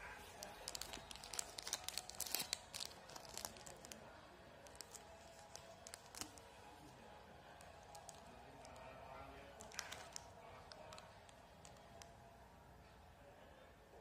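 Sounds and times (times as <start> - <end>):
plastic wrapper crinkling: 0.3 - 6.8, 7.4 - 12.1.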